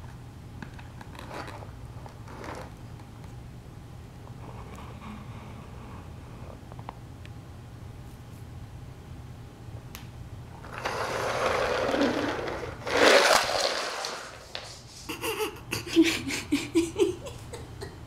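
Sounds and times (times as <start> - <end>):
toy castle knocked over: 11.5 - 14.7.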